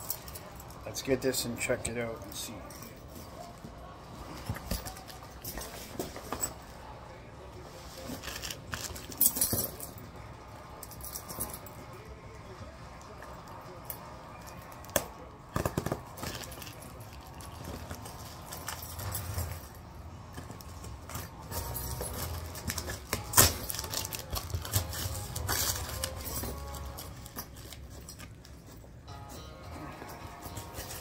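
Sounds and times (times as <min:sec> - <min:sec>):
plastic packaging crinkling: 0:22.2 - 0:28.6.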